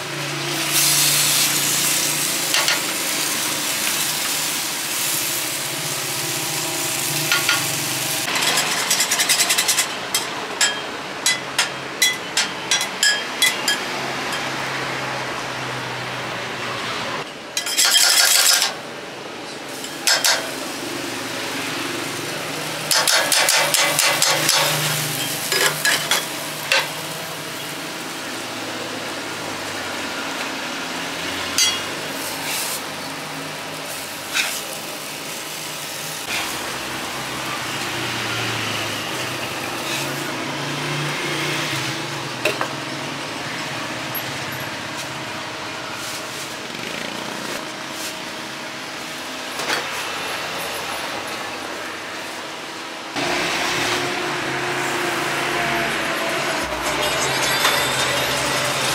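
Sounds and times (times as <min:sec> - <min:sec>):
food sizzling in a pan: 0:00.0 - 0:10.2, 0:19.7 - 0:42.0
utensils clinking and scraping: 0:08.3 - 0:13.8, 0:17.6 - 0:18.8, 0:22.9 - 0:26.9, 0:56.6 - 0:58.9.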